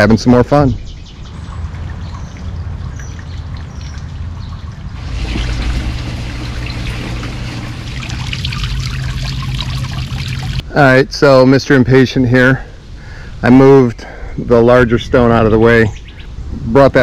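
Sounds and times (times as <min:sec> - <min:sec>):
fountain water trickling and splashing: 0:01.2 - 0:10.6.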